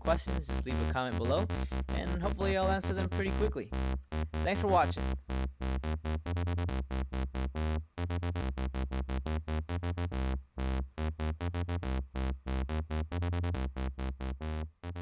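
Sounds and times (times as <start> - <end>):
chopped synth stabs: 0.0 - 15.0
dubstep wobble bass: 0.0 - 15.0.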